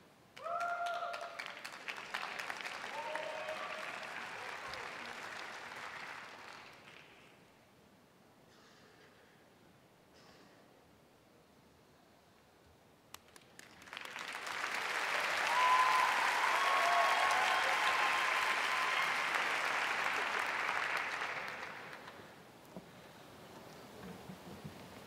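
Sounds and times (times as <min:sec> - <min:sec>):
audience applauding: 0:00.4 - 0:07.2, 0:13.2 - 0:22.3.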